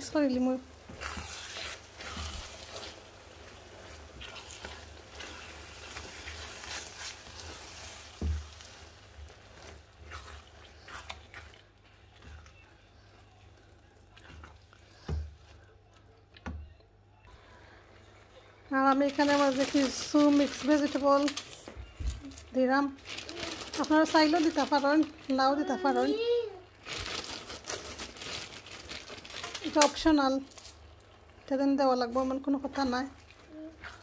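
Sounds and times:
meat sizzling in a frying pan: 0.0 - 11.4
spatula stirring and scraping: 0.0 - 16.1, 27.4 - 34.0.

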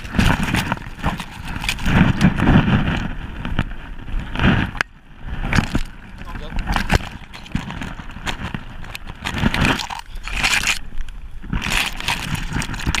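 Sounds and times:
bracken rustling and crunching: 0.0 - 13.0.

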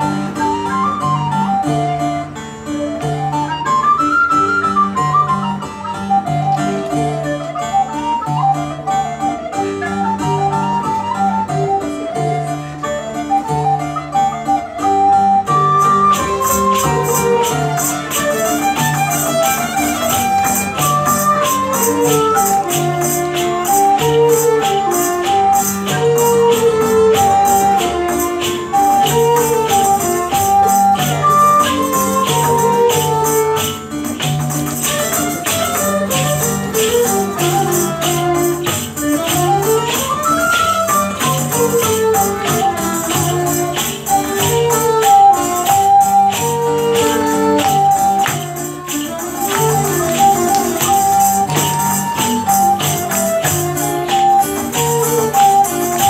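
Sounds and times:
bowed fiddle: 0.0 - 56.0
recorder melody: 0.0 - 56.0
tambourine beat: 16.1 - 56.0.

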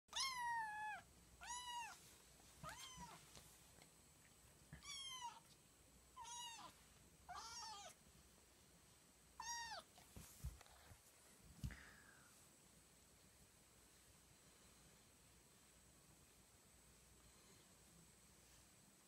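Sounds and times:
kitten meowing: 0.1 - 2.0, 2.6 - 3.2, 4.8 - 5.4, 6.2 - 6.7, 7.3 - 8.0, 9.4 - 9.9.

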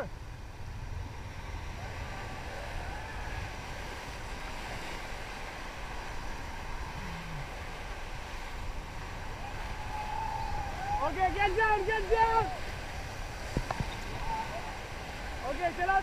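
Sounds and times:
wind buffeting microphone: 0.0 - 16.0
river rapids rushing: 1.5 - 16.0.

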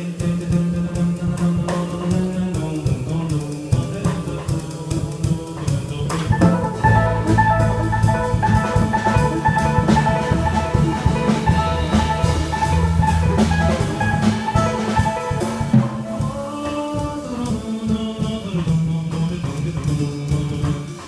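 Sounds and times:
drum kit with cymbals: 0.0 - 21.0
plucked double bass: 0.5 - 16.4
electric guitar melody: 6.3 - 16.6.

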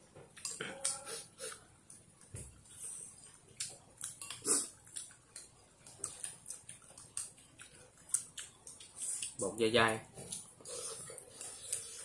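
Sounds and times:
people slurping noodles: 4.3 - 4.8, 10.6 - 12.0.

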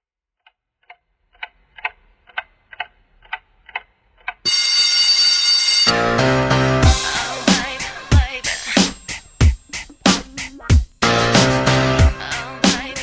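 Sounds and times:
wall clock ticking: 0.4 - 6.0
loud steady ringing: 4.5 - 10.1.

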